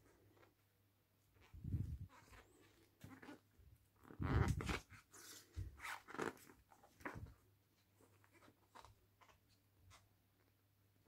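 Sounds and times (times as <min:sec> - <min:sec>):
booklet pages flipping: 0:01.4 - 0:10.1
light paper handling noise: 0:04.4 - 0:10.6.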